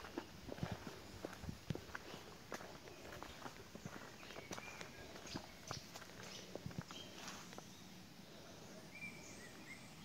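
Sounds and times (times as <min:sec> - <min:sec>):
footsteps and scuffs: 0:00.0 - 0:07.7.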